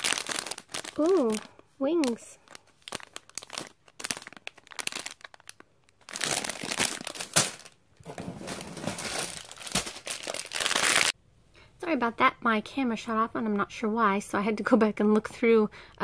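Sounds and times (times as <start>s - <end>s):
plastic bags crinkling: 0.0s - 11.2s.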